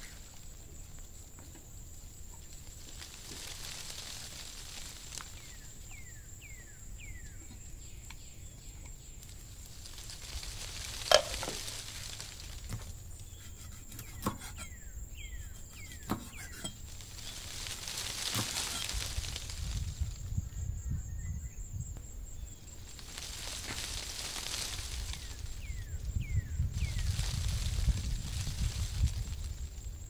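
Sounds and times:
stew sizzling in a pot: 9.9s - 14.8s.

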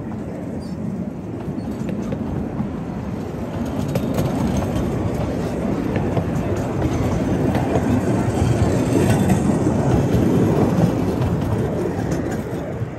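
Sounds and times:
train wheels rumbling on rail: 0.0s - 12.9s.

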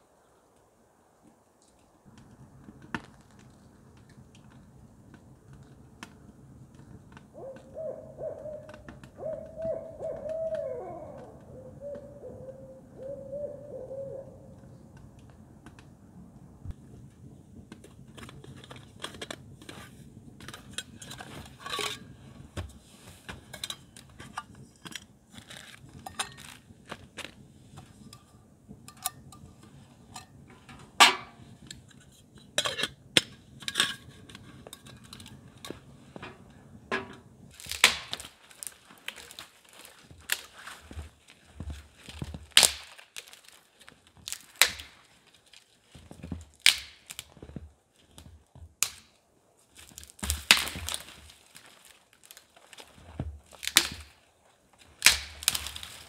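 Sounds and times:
owl hooting: 7.3s - 14.8s.

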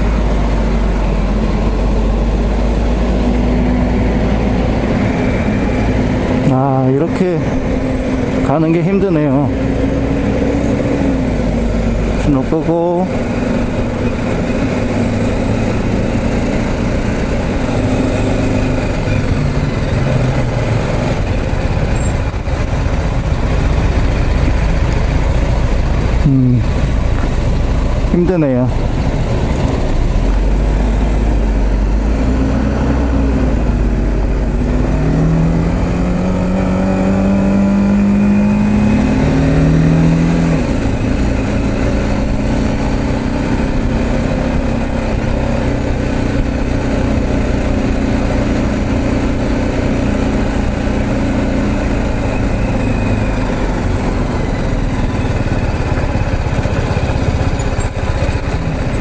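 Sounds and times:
motorcycle engine accelerating: 0.0s - 59.0s.

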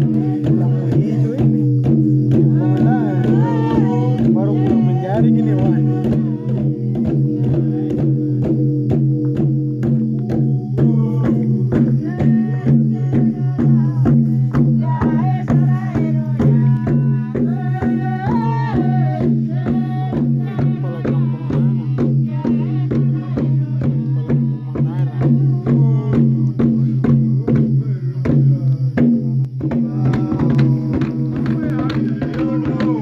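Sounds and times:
hand drums beating: 0.0s - 33.0s
voices singing: 0.0s - 33.0s.

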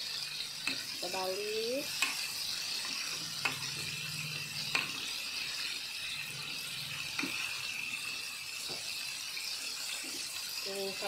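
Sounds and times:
chicken deep-frying in oil: 0.0s - 11.0s
metal tongs clicking on pan: 1.9s - 2.2s, 4.7s - 5.0s.

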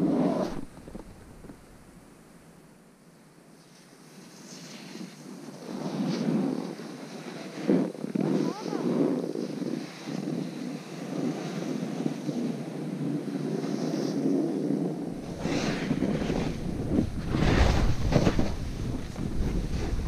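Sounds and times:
skis scraping over snow: 0.0s - 1.7s, 3.6s - 20.0s
wind rushing over microphone: 5.5s - 20.0s
deep buffeting rumble: 15.1s - 20.0s.

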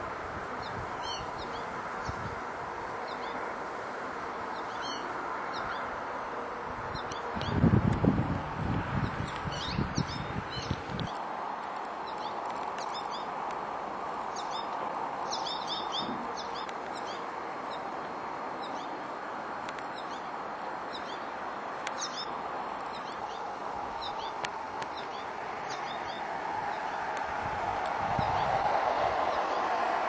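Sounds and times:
steady background noise: 0.0s - 30.0s
small songbirds chirping: 0.5s - 3.6s, 4.4s - 6.0s, 6.9s - 7.7s, 9.0s - 11.2s, 12.0s - 13.4s, 14.2s - 19.0s, 19.6s - 27.1s.

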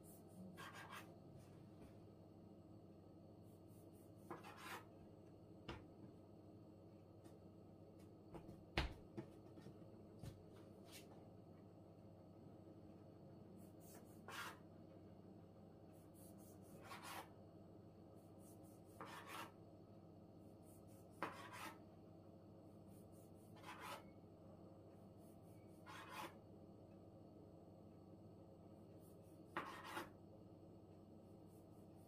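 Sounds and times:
faint steady hum: 0.0s - 32.0s
knife slicing dough on wood: 4.2s - 4.9s, 20.9s - 21.8s, 23.5s - 24.1s, 29.5s - 30.2s.

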